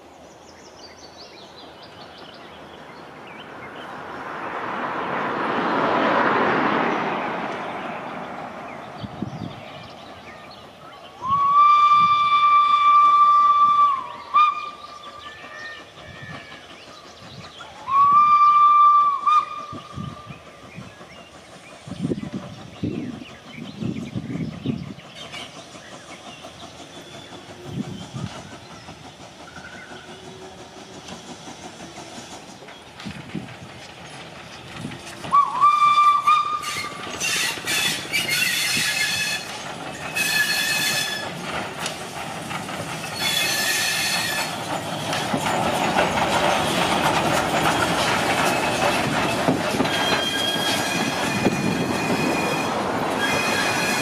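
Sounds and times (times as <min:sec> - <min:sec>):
train rumbling and hissing: 0:00.0 - 0:54.0
steam locomotive whistle: 0:11.2 - 0:15.0, 0:17.8 - 0:20.0, 0:35.3 - 0:41.4, 0:43.2 - 0:44.6, 0:49.8 - 0:54.0
train wheels squealing: 0:19.4 - 0:32.9, 0:35.0 - 0:41.6, 0:42.4 - 0:54.0.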